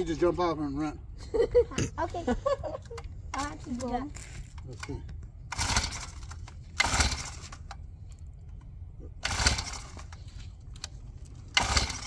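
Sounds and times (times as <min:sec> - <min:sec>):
engine pull-start cord whirring: 0:04.8 - 0:07.9, 0:09.2 - 0:12.0.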